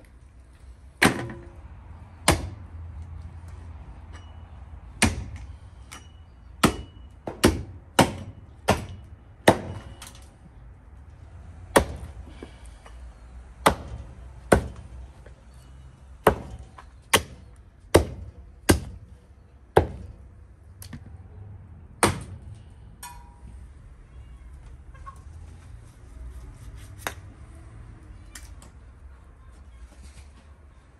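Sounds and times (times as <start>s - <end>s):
hatchet chopping bones: 2.2s - 2.6s, 5.0s - 10.2s, 11.7s - 12.4s, 13.6s - 14.9s, 16.2s - 19.1s, 19.8s - 20.2s, 22.0s - 22.4s.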